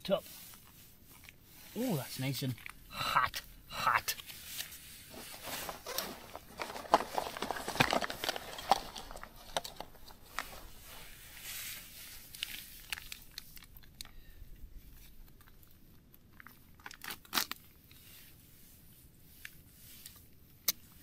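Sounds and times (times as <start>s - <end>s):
food packaging crinkling and tearing: 4.3s - 14.2s, 14.8s - 18.0s.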